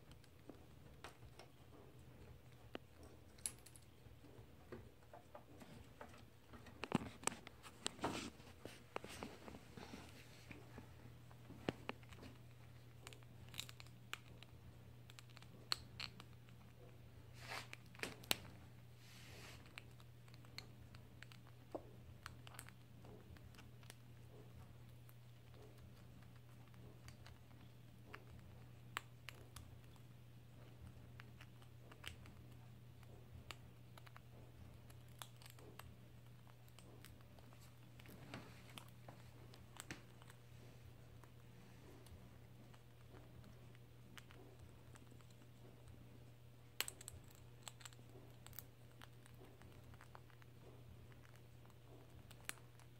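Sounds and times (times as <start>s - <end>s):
faint low hum: 0.0s - 52.9s
squirrel gnawing on stick: 0.0s - 52.9s
scratchy rustles: 5.5s - 13.0s, 17.2s - 20.0s.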